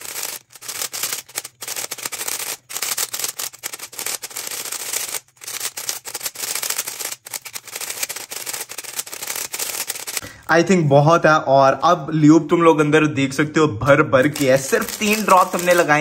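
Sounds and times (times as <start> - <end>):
plastic puzzle cube clicking: 0.0 - 10.2.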